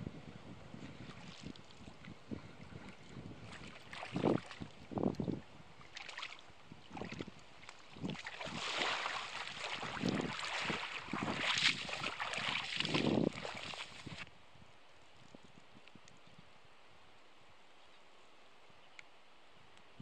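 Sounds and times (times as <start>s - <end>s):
water sloshing around wading legs: 2.8s - 4.8s, 5.8s - 14.2s.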